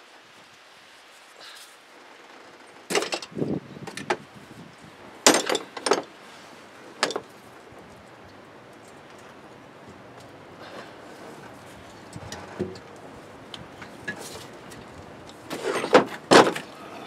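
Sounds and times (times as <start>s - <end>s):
metal hand tools clanking: 5.3s - 6.1s, 7.0s - 7.3s, 15.5s - 16.8s.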